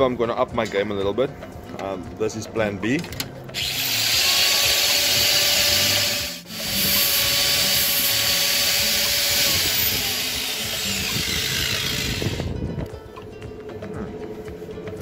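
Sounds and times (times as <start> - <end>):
angle grinder grinding steel: 3.5 - 12.6.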